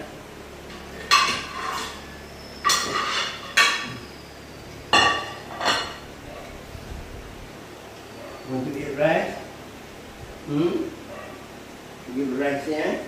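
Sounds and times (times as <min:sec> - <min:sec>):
plates clinking on a table: 0:00.7 - 0:04.0, 0:04.9 - 0:06.6.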